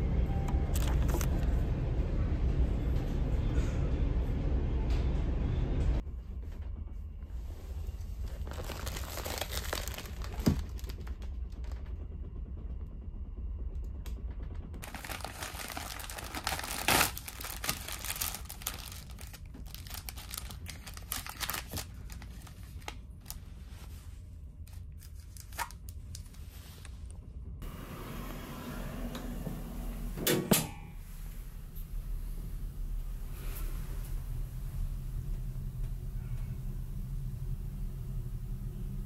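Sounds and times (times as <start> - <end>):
steady low hum: 0.0 - 39.0
plastic packaging crinkling: 8.3 - 11.6, 14.8 - 23.4, 24.8 - 26.4.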